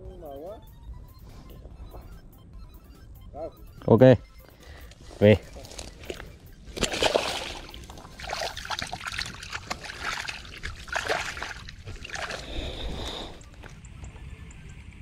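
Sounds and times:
hands splashing in water: 5.8s - 13.6s.

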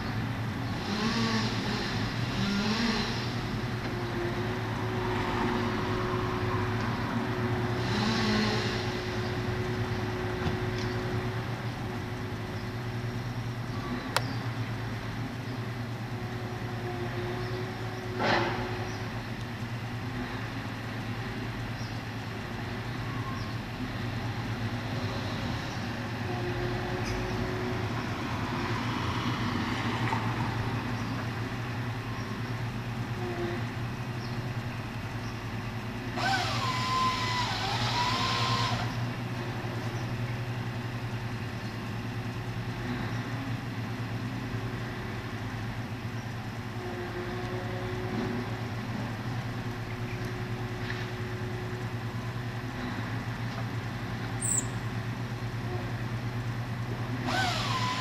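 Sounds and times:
crane engine drone: 0.0s - 58.0s
hissing burst with whine: 36.2s - 39.0s.

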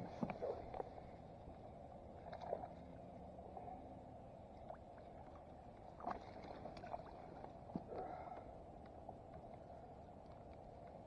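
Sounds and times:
water swishing along kayak hull: 0.0s - 11.0s
faint ticks: 7.7s - 11.0s.

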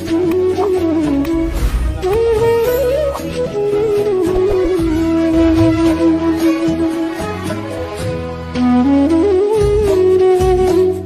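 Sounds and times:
gliding melody line: 0.5s - 7.5s.

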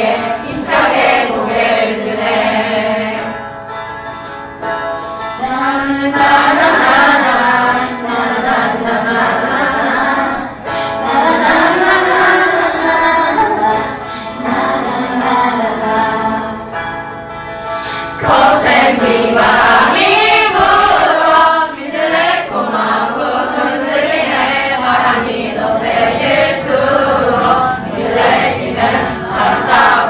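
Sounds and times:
children singing in chorus: 0.0s - 3.4s, 5.4s - 16.6s, 18.2s - 30.0s
instrumental accompaniment: 0.0s - 30.0s.

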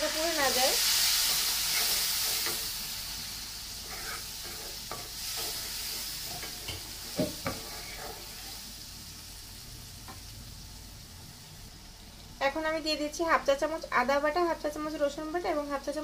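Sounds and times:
masala sizzling in a pan: 0.0s - 16.0s
wooden spatula knocking pan: 6.7s - 7.6s.

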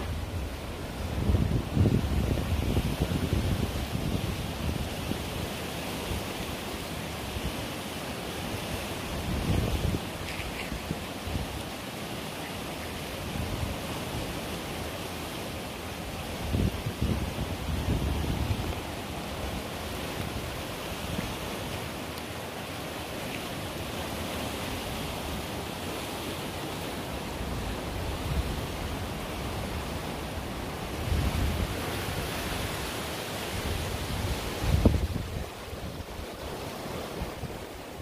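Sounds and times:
wind buffeting microphone: 0.0s - 5.3s, 16.3s - 21.5s, 27.4s - 38.0s
river rushing: 0.0s - 38.0s.

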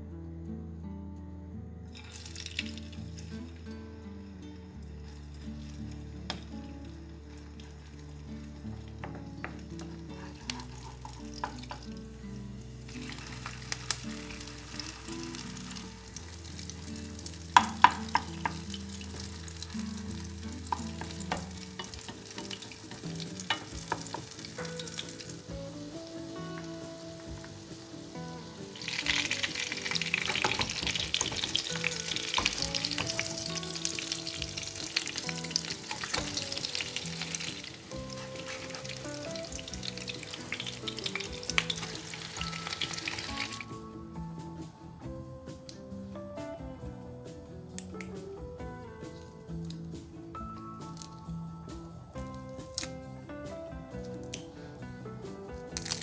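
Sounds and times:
food sizzling in oil: 2.0s - 9.2s, 9.8s - 43.8s
wooden spoon knocking on pan: 17.6s - 19.3s, 20.6s - 25.4s, 28.8s - 42.8s.

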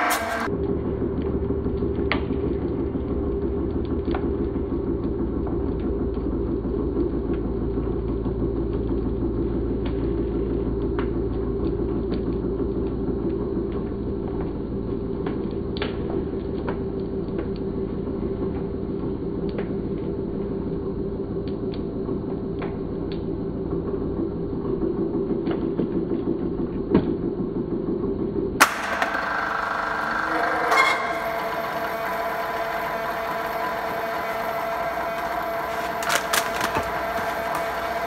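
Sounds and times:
hydraulic press humming: 0.0s - 0.6s, 28.6s - 38.0s
plastic crackling and clicking: 28.6s - 38.0s.

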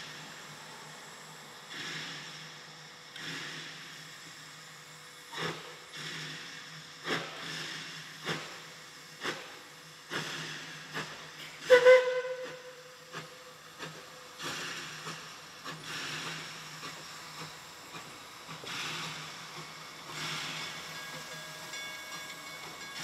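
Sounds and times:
steam locomotive exhaust chuffing: 0.0s - 23.0s
steam whistle toots: 11.6s - 13.0s.

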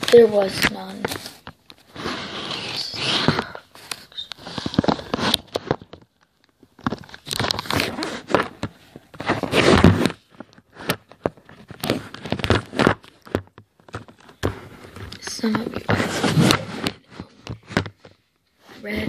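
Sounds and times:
rustling and scraping handling noise: 0.0s - 19.0s.

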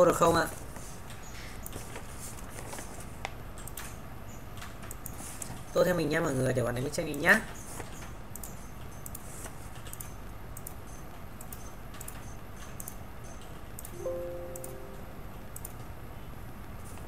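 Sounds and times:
computer mouse clicks: 1.1s - 2.0s, 3.2s - 5.7s, 7.1s - 14.0s, 15.6s - 15.9s
low steady hum: 13.8s - 16.9s
short electronic chime: 14.0s - 15.3s.

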